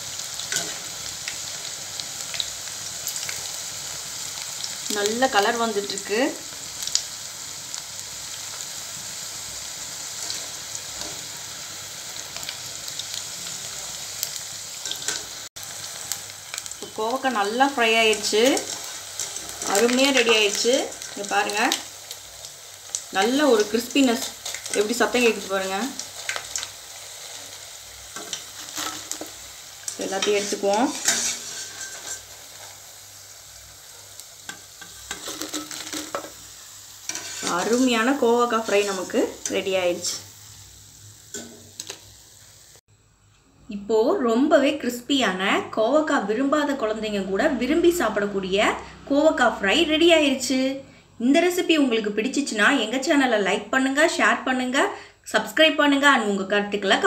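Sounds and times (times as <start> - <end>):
food deep-frying in oil: 0.0 - 42.8.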